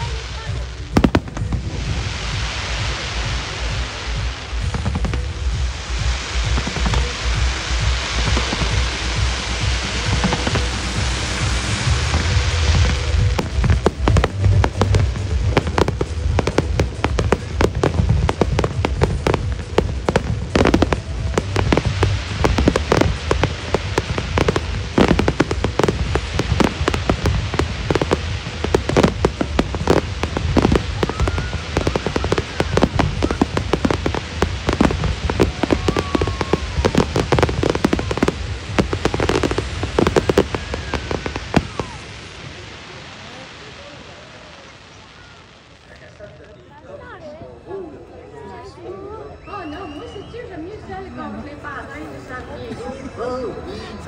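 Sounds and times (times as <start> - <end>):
fireworks bangs and crackling: 0.0 - 48.7
music with heavy low end: 0.1 - 41.6.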